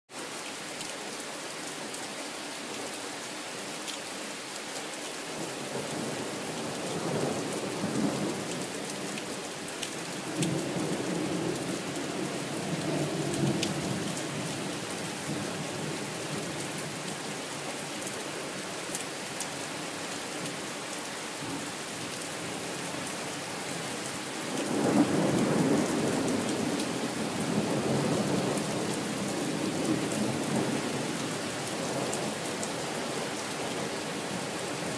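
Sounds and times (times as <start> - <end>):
rain hissing: 23.6 - 34.9
thunder rumbling: 24.7 - 31.0.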